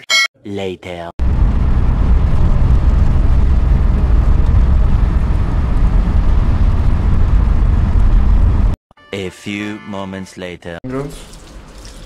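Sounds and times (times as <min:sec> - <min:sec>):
car interior rumble: 0:01.2 - 0:08.8.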